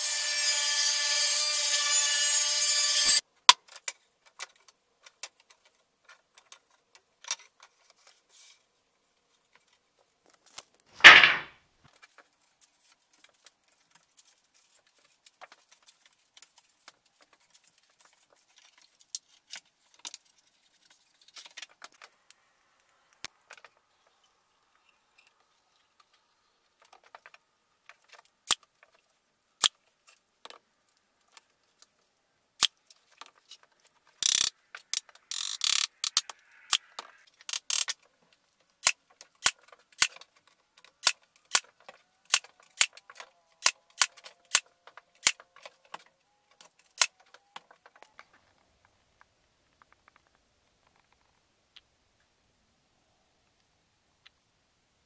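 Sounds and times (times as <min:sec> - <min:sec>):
table saw blade whine: 0:00.0 - 0:03.2.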